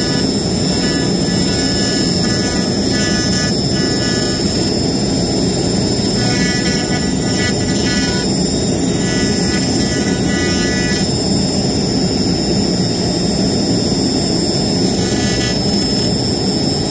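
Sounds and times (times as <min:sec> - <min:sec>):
router spindle whine: 0:00.0 - 0:16.9.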